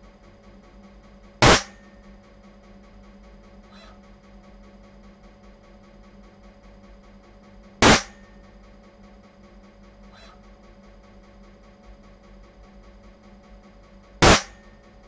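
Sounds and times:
steady low hum: 0.0s - 15.0s
loud sharp snap: 1.4s - 1.8s, 7.8s - 8.2s, 14.2s - 14.6s.

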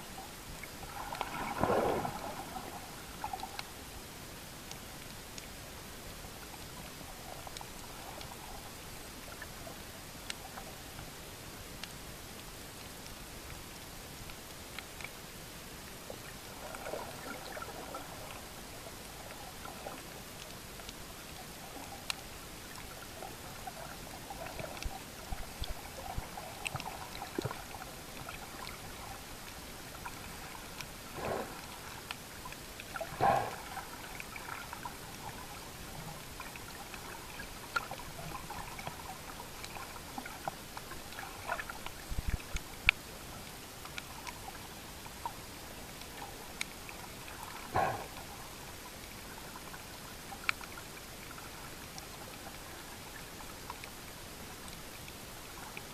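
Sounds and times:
underwater hiss with crackles: 0.1s - 55.9s
whooshes of moving water: 0.9s - 3.6s, 30.1s - 32.2s.

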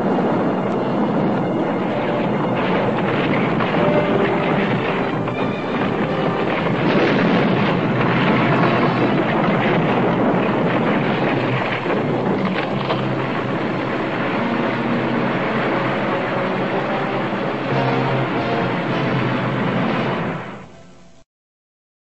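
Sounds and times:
loud rushing noise effect: 0.0s - 21.1s
faint held music notes: 12.5s - 21.2s.

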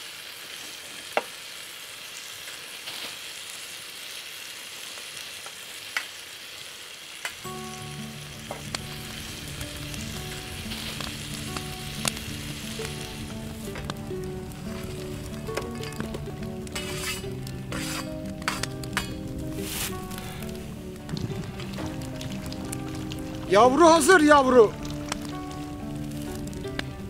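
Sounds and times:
food sizzling in a pan: 0.0s - 27.0s
background music: 7.4s - 27.0s
sharp pops: 8.4s - 23.4s.

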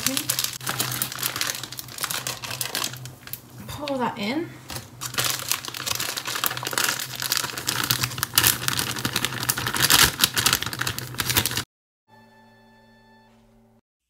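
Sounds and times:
dry mix pouring into bowl: 0.0s - 3.4s, 4.9s - 11.6s
sachet crinkling: 0.0s - 3.5s, 4.7s - 11.6s.

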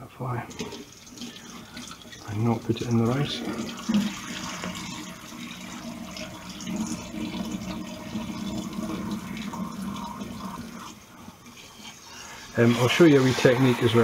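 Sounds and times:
tap running water into bowl: 0.5s - 11.0s.

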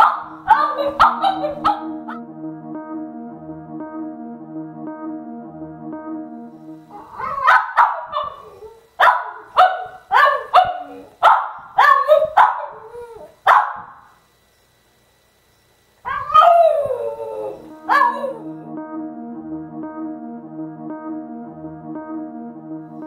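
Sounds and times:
dog barking: 0.0s - 2.2s, 7.0s - 14.1s, 17.9s - 18.4s
dog crying: 0.4s - 2.2s, 6.9s - 8.8s, 16.1s - 18.4s.

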